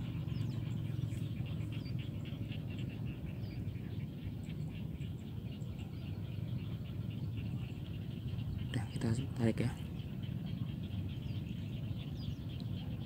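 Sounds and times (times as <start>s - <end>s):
rapid ticking animal calls: 0.0s - 13.0s
steady low rumble: 0.0s - 13.0s.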